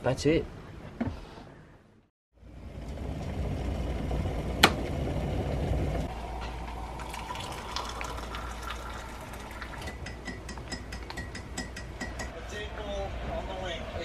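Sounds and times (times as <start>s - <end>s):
water pouring into a mug: 6.1s - 10.0s.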